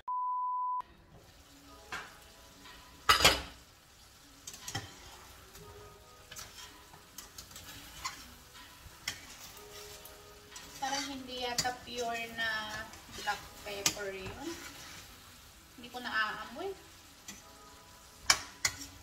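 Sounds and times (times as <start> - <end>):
low sizzle: 0.8 - 19.0
metal spoon scraping a pan: 4.4 - 16.1, 17.0 - 19.0.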